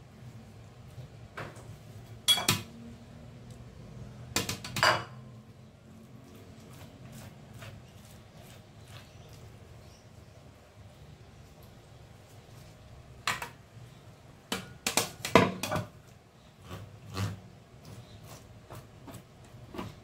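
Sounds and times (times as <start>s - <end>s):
clinks against metal tray: 2.3s - 2.7s
utensil scraping fish off bones: 6.0s - 9.7s.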